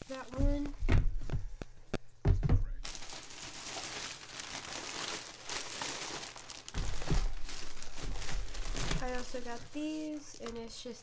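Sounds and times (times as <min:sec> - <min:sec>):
soft knocks: 0:02.2 - 0:02.8
plastic crinkling and rustling: 0:02.8 - 0:11.0.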